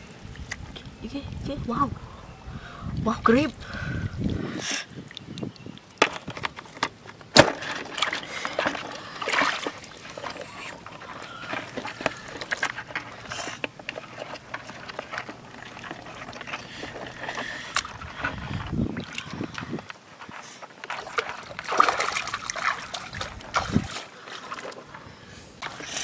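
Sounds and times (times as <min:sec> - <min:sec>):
clicks and knocks on rocks: 0:05.2 - 0:24.9
hands splashing in shallow water: 0:20.8 - 0:24.9.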